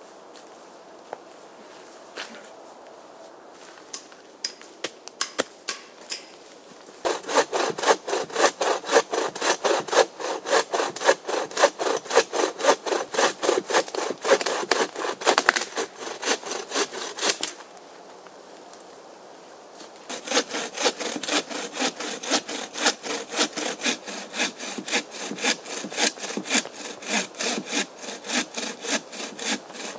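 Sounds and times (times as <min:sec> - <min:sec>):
bow saw cutting log: 0:07.0 - 0:17.5, 0:20.1 - 0:29.9.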